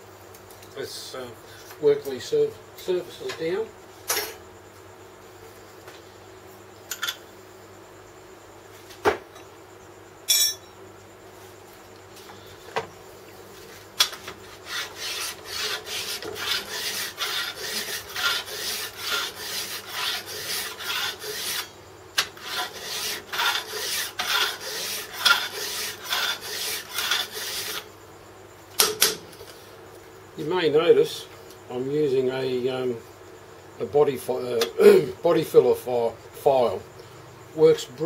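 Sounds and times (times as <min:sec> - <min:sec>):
file rasping on metal: 0:14.5 - 0:27.9.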